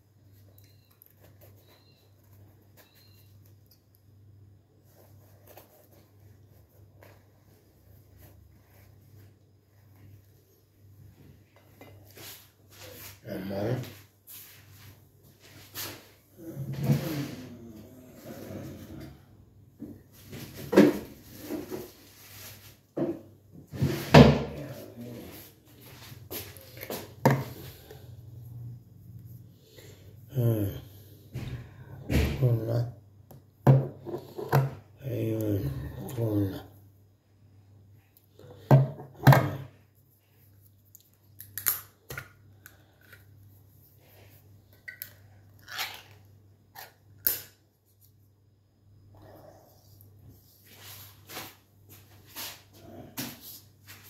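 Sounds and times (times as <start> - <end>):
crusty bread tearing: 45.6 - 47.6.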